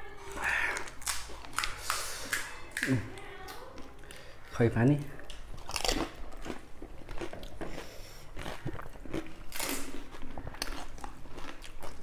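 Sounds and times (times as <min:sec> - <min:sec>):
crunchy food chewing: 0:05.2 - 0:12.0.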